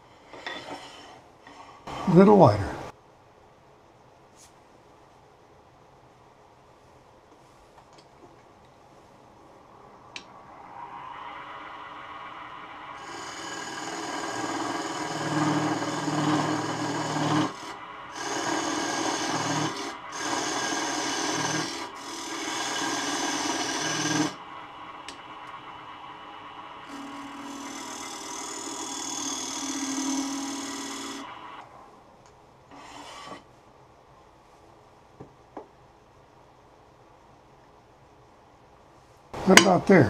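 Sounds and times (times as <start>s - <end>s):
wood lathe whirring: 10.1s - 31.9s, 32.7s - 33.5s
turning tool scraping wood: 12.4s - 24.4s, 26.8s - 31.5s, 32.7s - 33.5s.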